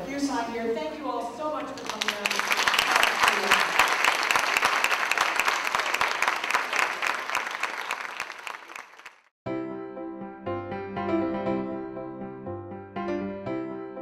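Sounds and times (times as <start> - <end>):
audience applauding: 1.8 - 9.3
gentle piano music: 9.5 - 14.0.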